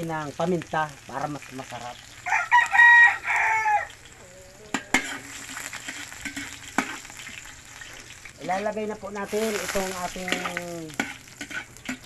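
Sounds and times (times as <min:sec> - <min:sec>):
onion and garlic sizzling in oil: 0:00.0 - 0:12.0
rooster crowing: 0:02.2 - 0:04.9.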